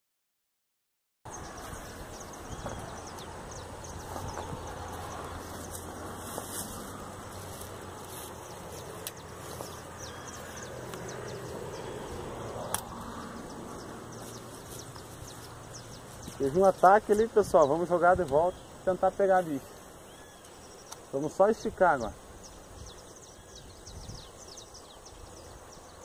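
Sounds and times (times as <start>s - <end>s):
faint scattered ticks: 4.1s - 11.6s.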